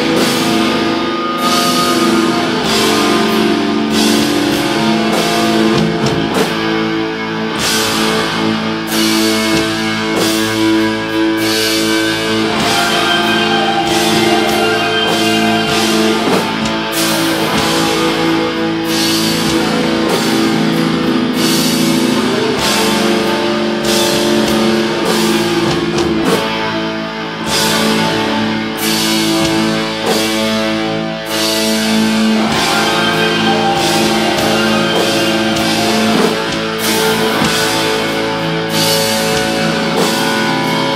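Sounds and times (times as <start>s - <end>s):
distorted electric guitars: 0.0s - 40.9s
drum hits: 7.6s - 26.7s, 28.8s - 40.7s.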